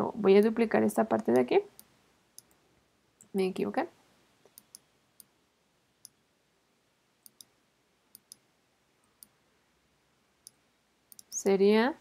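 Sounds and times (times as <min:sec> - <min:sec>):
faint computer mouse clicks: 0:04.4 - 0:05.3, 0:07.2 - 0:08.4, 0:09.2 - 0:09.4, 0:10.4 - 0:11.4.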